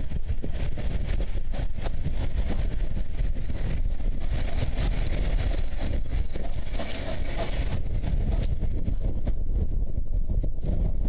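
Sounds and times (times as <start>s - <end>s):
train carriages rolling on track: 0.0s - 8.5s
wind buffeting microphone: 0.0s - 11.0s.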